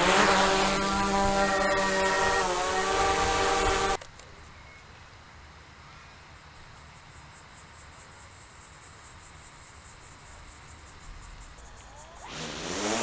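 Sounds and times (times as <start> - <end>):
faint outdoor background noise: 0.0 - 13.0
insect chirping: 6.0 - 13.0.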